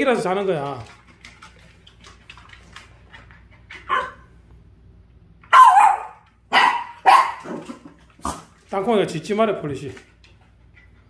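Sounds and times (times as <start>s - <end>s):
dog barking: 3.9s - 4.2s, 5.5s - 7.6s.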